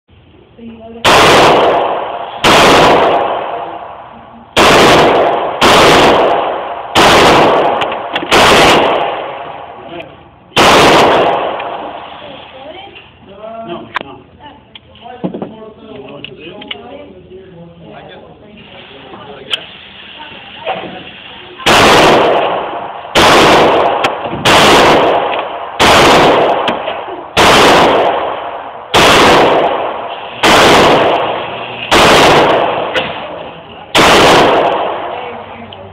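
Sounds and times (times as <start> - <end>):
pistol shots with echo: 1.0 - 12.1, 21.6 - 35.4.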